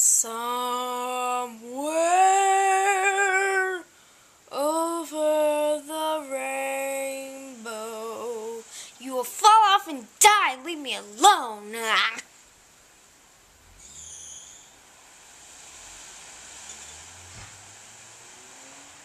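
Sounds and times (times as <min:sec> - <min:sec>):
child singing: 0:00.0 - 0:03.9, 0:04.5 - 0:12.3.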